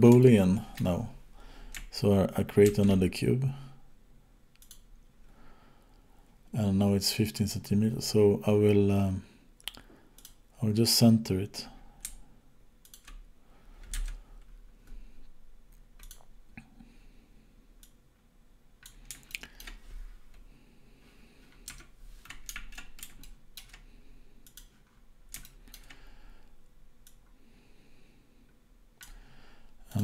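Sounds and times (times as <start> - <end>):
keyboard and mouse clicking: 2.6 - 3.0, 4.6 - 4.8, 12.8 - 13.2, 13.8 - 14.2, 16.0 - 16.3, 18.8 - 19.8, 21.5 - 23.8, 24.4 - 26.0, 29.0 - 29.2.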